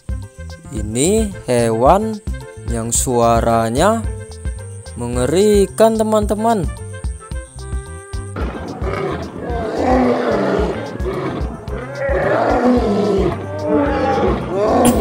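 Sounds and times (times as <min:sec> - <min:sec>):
background music with steady beat: 0:00.0 - 0:15.0
lions roaring: 0:08.4 - 0:15.0.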